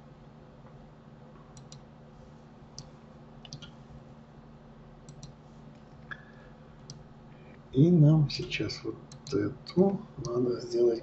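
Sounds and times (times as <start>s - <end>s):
computer mouse clicks: 1.5s - 1.9s, 2.7s - 3.8s, 5.0s - 5.4s, 6.0s - 7.0s, 9.1s - 10.4s.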